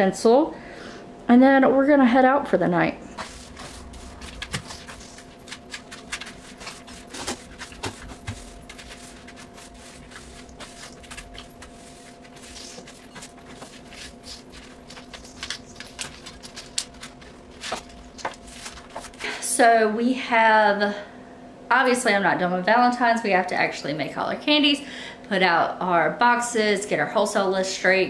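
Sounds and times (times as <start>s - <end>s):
steady low hum: 0.0s - 28.0s
broom sweeping tile floor: 3.0s - 19.4s.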